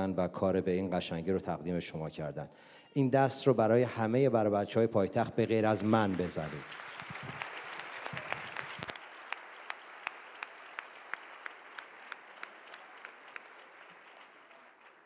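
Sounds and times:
audience applause: 5.6s - 15.0s
single person clapping: 6.7s - 15.0s.

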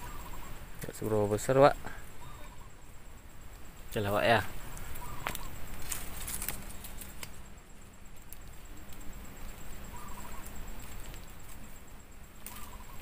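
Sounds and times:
faint steady hum: 0.0s - 13.0s
short bird call: 4.9s - 5.5s.

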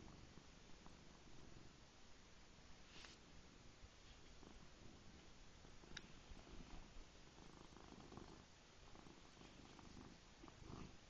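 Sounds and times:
cat purring: 0.0s - 1.8s, 4.1s - 11.0s.

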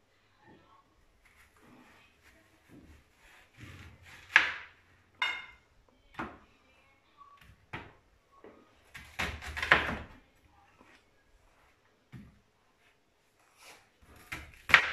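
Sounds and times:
knife cutting onion on board: 3.2s - 4.8s, 8.8s - 10.2s, 13.6s - 14.9s.

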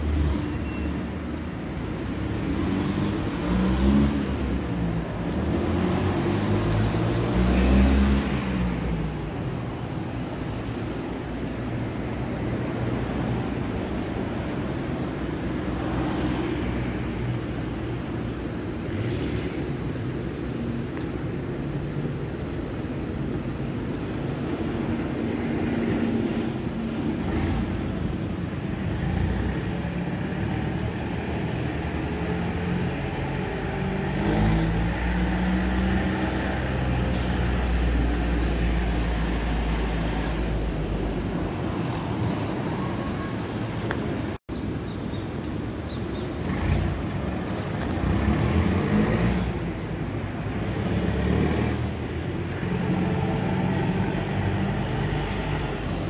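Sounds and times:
cars running past: 1.6s - 10.3s, 46.4s - 56.0s.

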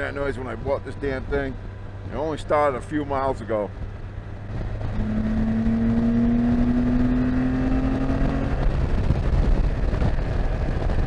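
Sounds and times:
road rumble: 0.0s - 11.0s
wind noise: 0.0s - 11.0s
motorcycle engine revving: 3.8s - 11.0s.

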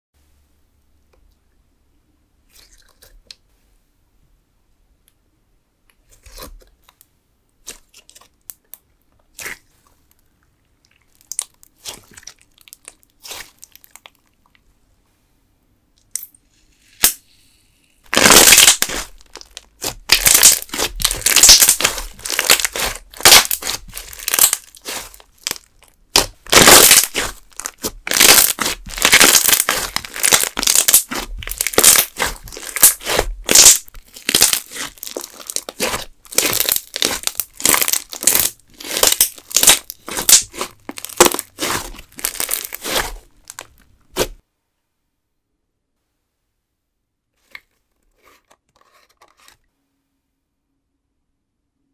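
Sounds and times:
slime crackling and squishing: 9.3s - 9.8s, 10.9s - 14.6s, 18.1s - 44.4s.

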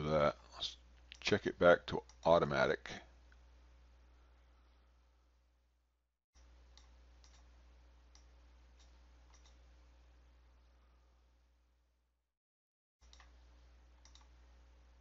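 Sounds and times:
low electrical hum: 0.0s - 12.2s, 13.0s - 15.0s
computer mouse clicks: 6.4s - 7.5s, 8.1s - 9.6s, 13.0s - 13.4s, 14.0s - 14.4s.

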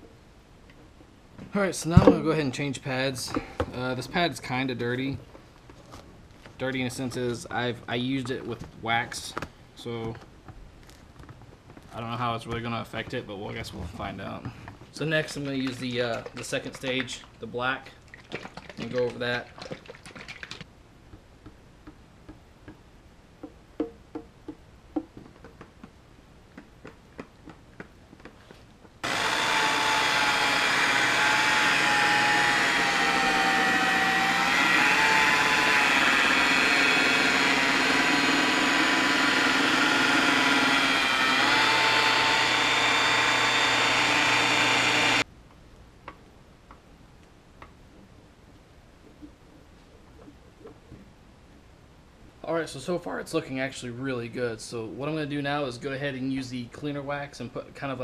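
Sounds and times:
rotary buffer motor whine: 29.0s - 45.2s.

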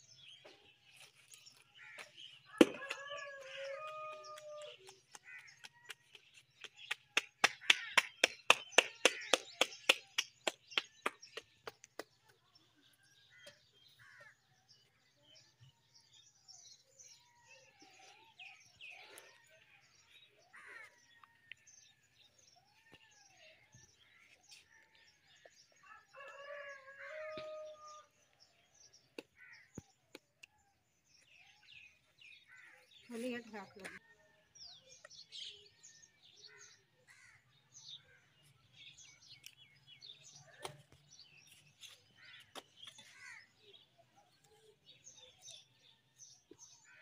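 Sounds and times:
rooster crowing: 2.7s - 4.7s, 25.8s - 28.1s.

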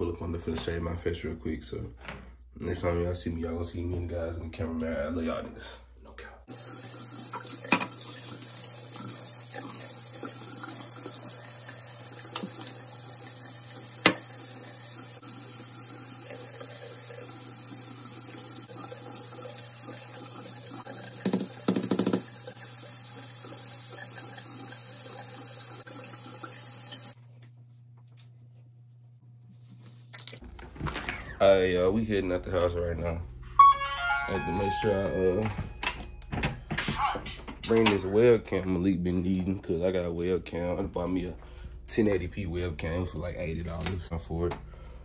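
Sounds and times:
tap running into a sink: 7.2s - 8.2s, 12.2s - 12.8s, 14.0s - 14.4s, 20.8s - 22.6s.

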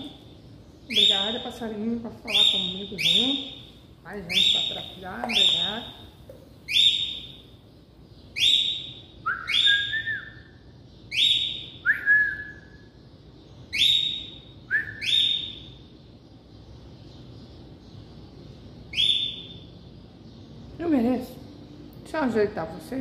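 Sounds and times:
bird whistled calls: 0.9s - 1.5s, 4.3s - 6.0s, 6.7s - 7.4s, 8.4s - 13.0s, 13.7s - 15.8s, 18.9s - 19.6s.

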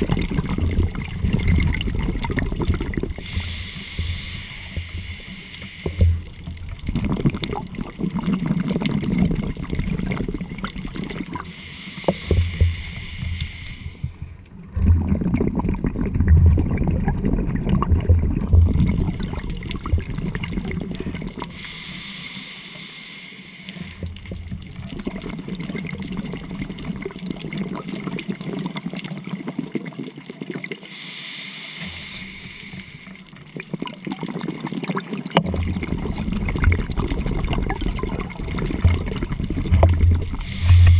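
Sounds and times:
exhaled bubbles gurgling: 0.0s - 22.2s, 23.7s - 40.9s
regulator inhale hiss: 3.2s - 6.6s, 11.4s - 14.4s, 21.4s - 24.4s, 30.8s - 33.4s, 40.4s - 40.9s.

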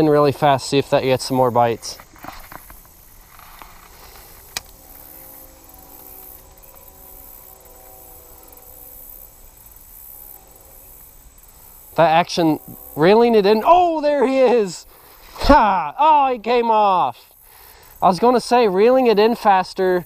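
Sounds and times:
fishing reel whirring: 2.1s - 14.3s.

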